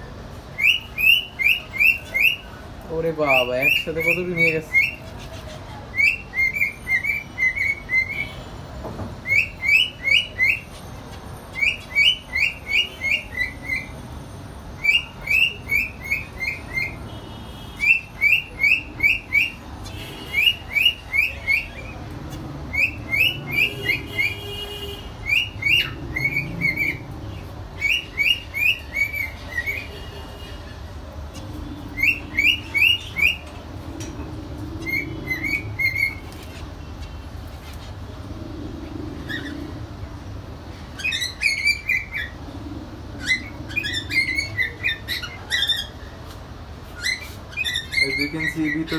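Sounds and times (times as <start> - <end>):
finches calling: 40.9 - 46.0.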